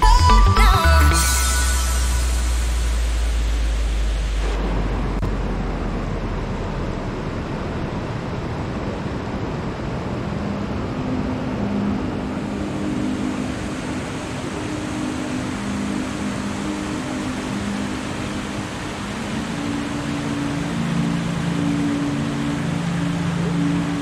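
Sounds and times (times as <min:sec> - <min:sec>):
background music: 0:00.0 - 0:04.0
water rushing over rocks: 0:01.7 - 0:24.0.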